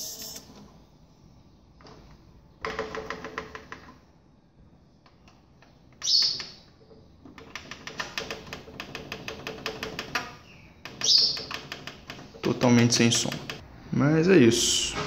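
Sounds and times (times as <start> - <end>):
rapid even clicking: 7.3 - 13.6.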